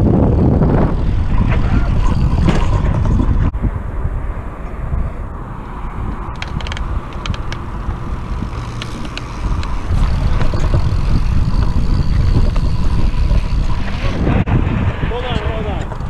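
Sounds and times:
bike tyres on dirt and rattle: 0.0 - 3.5, 6.0 - 16.0
wind buffeting microphone: 0.0 - 16.0
sharp clicks: 6.1 - 13.5.

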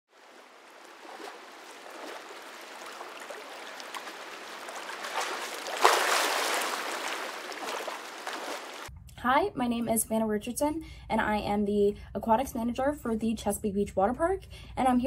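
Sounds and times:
sharp water splash: 0.1 - 8.9
water splashing and trickling: 0.1 - 8.9.

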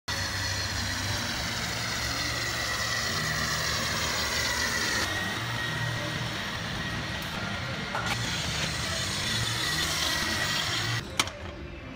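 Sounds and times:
vacuum cleaner whining: 0.1 - 11.0
vacuum nozzle on concrete floor: 0.1 - 11.3.

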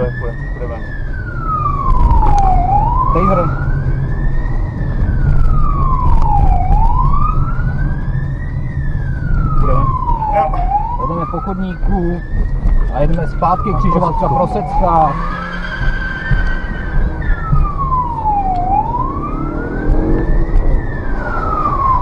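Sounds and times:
car engine rumble: 0.0 - 22.0
police siren wailing: 0.0 - 22.0
road noise: 0.0 - 22.0.

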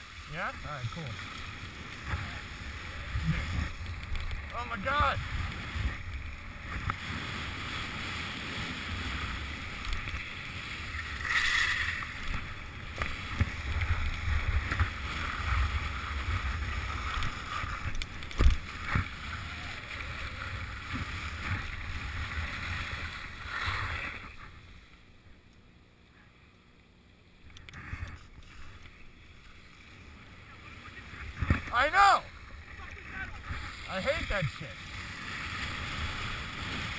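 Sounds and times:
skis hissing over snow: 4.6 - 17.9.

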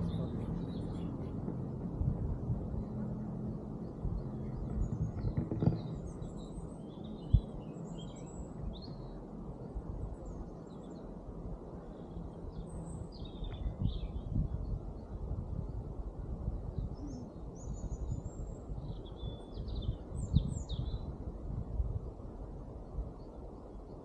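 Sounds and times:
small birds chirping: 0.0 - 1.4, 11.8 - 15.2, 16.8 - 21.1
steady low rumble: 0.0 - 24.0.

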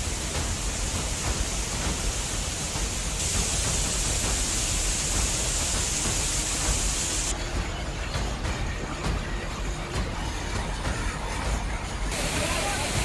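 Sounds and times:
floodwater rushing: 12.1 - 13.0.

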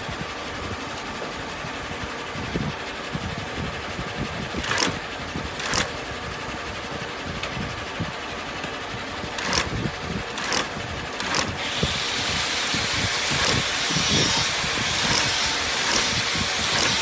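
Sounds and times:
sewing machine stitching leather: 4.6 - 5.0, 5.6 - 6.0, 9.4 - 12.1, 13.1 - 17.0.

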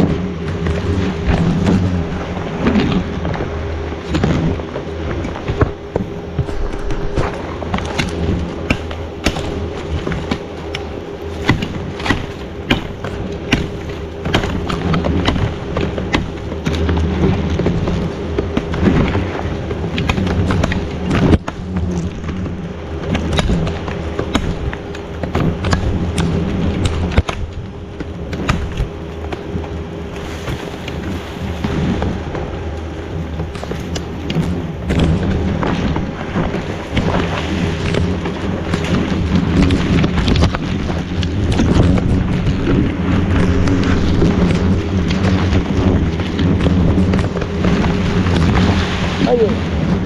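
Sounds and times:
branches rustling: 6.0 - 10.0.

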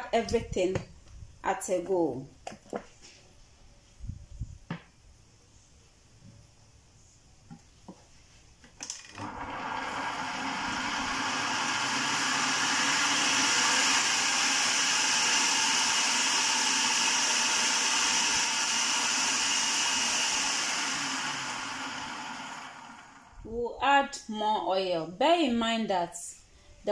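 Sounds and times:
food processor motor running: 8.8 - 23.3.

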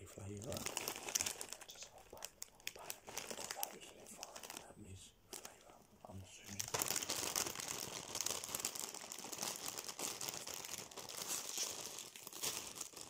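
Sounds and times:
crisp packet crinkling: 0.0 - 4.7, 5.3 - 13.0.

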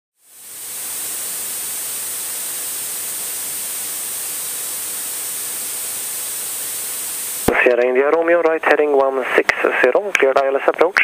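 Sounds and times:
aircraft cockpit hiss: 0.2 - 11.0
thin high whine: 0.2 - 11.0.

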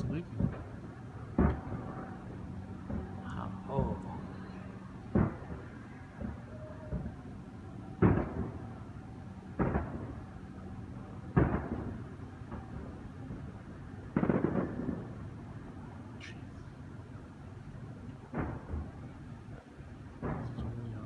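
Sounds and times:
firework shells booming: 0.0 - 15.9, 18.2 - 19.4, 20.1 - 21.0
firework crackle: 0.0 - 20.9
small firework pops: 1.4 - 1.8, 5.1 - 5.6, 8.0 - 8.6, 9.6 - 10.1, 11.3 - 12.7, 14.1 - 15.1, 20.2 - 20.7.

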